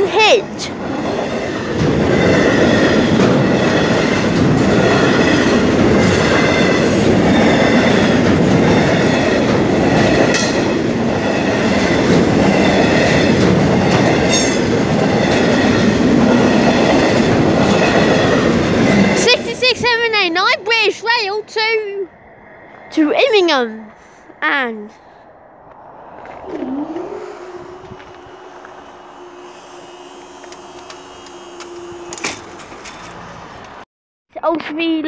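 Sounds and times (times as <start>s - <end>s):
freight train rumbling past: 0.0s - 33.8s
high-pitched squeals: 22.1s - 33.0s
wheels clacking over rail joints: 26.4s - 33.8s.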